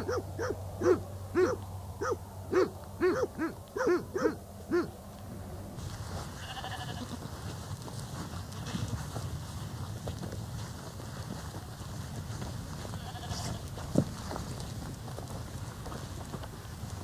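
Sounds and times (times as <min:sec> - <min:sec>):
rising and falling animal calls: 0:00.0 - 0:05.5.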